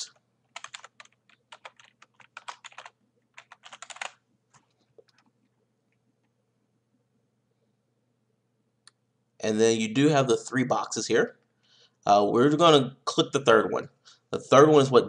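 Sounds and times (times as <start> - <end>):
typing on computer keyboard: 0.0 - 5.3.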